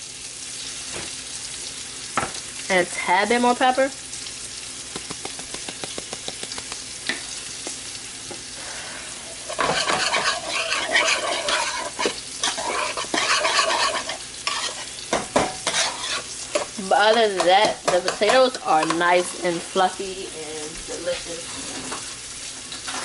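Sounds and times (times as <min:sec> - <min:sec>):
spoon stirring thick puree in pot: 0:09.5 - 0:14.8, 0:15.4 - 0:19.0.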